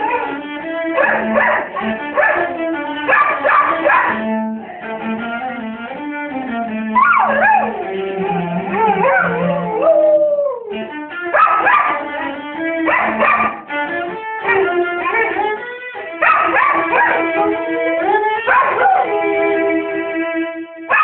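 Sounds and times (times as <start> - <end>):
dog howling and whining: 0.0 - 0.4, 1.0 - 5.0, 7.0 - 13.6, 16.2 - 19.4
cello bowed notes: 0.0 - 21.0.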